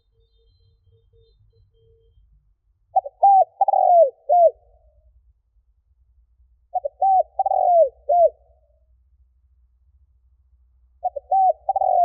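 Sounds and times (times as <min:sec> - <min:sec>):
dove cooing: 0:03.0 - 0:04.8, 0:06.7 - 0:08.6, 0:11.0 - 0:12.0.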